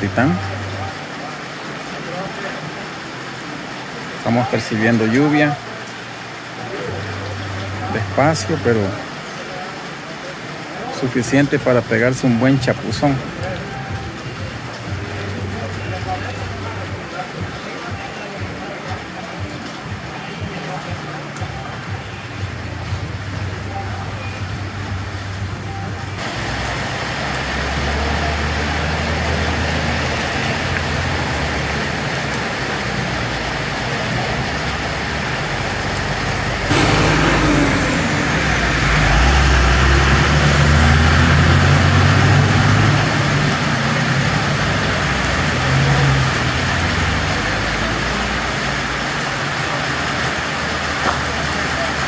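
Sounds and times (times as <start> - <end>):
rain on pavement: 0.0 - 52.0
tyres hissing on wet road: 0.0 - 52.0
bus engine rumble: 22.5 - 52.0.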